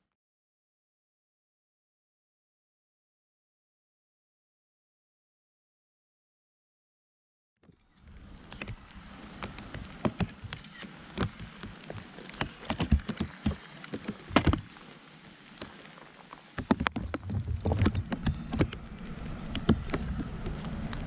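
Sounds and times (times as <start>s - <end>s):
water splashing and sloshing: 7.6s - 21.0s
sharp knocks and clicks: 9.4s - 14.7s, 16.6s - 18.9s, 19.5s - 21.0s
heavy low rumble: 16.9s - 21.0s.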